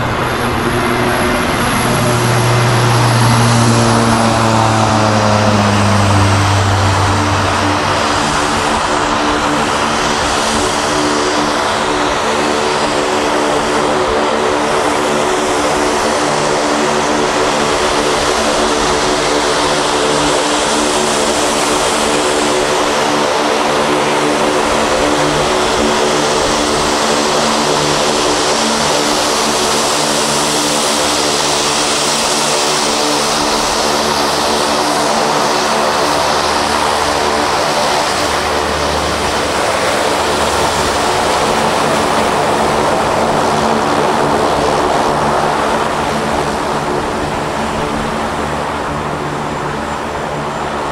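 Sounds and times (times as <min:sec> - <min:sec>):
engine whine: 0:00.0 - 0:50.9
turboprop propeller drone: 0:00.0 - 0:50.9.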